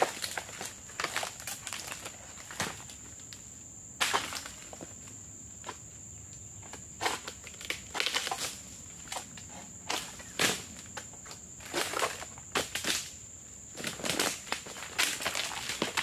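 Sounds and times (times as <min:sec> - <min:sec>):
dry fronds crunching and rustling: 0:00.0 - 0:03.4, 0:06.7 - 0:16.0
high insect drone: 0:00.0 - 0:16.0.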